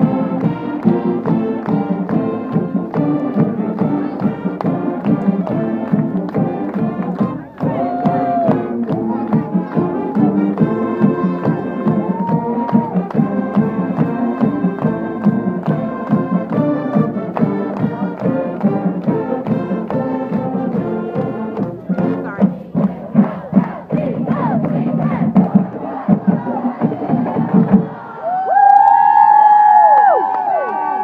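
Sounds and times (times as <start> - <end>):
brass band music: 0.0 - 28.0
steady drum beat: 0.0 - 28.1
crowd noise: 0.0 - 31.0
hand claps: 0.4 - 10.7.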